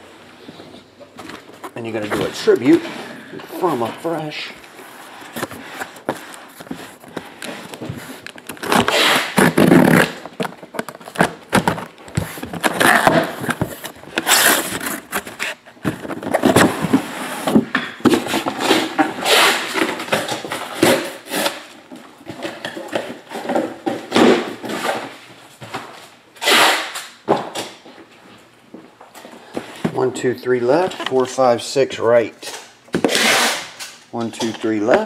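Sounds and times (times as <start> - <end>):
cardboard scraping on table: 4.8 - 10.3.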